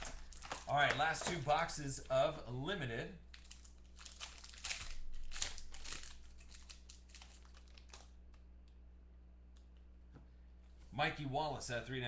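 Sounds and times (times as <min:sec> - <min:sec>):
foil wrapper crinkling: 0:00.0 - 0:01.8, 0:03.3 - 0:08.4.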